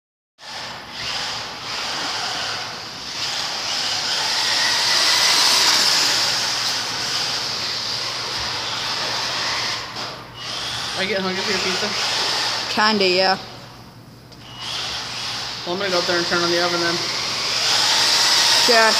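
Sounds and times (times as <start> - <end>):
toy car motor whirring: 0.4 - 12.7, 14.4 - 18.9.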